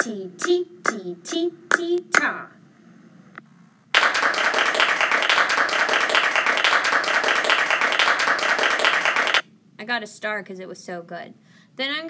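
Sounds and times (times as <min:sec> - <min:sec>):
applause: 0:04.0 - 0:09.4.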